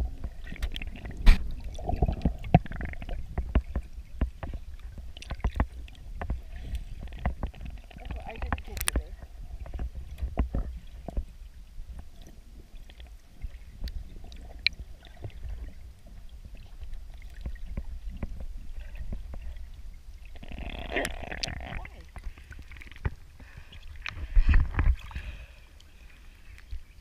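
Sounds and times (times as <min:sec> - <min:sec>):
low underwater rumble: 0:00.0 - 0:27.0
water sloshing: 0:00.0 - 0:27.0
underwater clicks: 0:00.2 - 0:11.3, 0:20.4 - 0:23.2.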